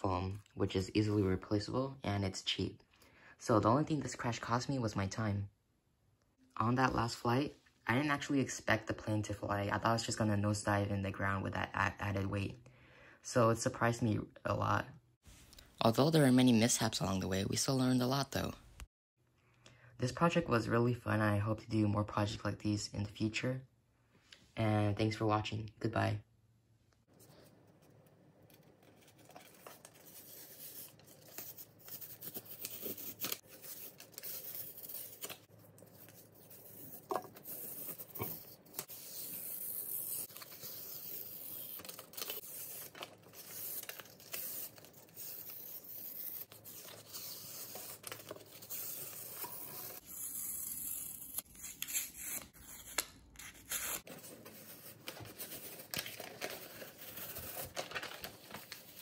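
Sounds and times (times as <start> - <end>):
paper rustling and crinkling: 27.2 - 50.0, 51.8 - 59.0.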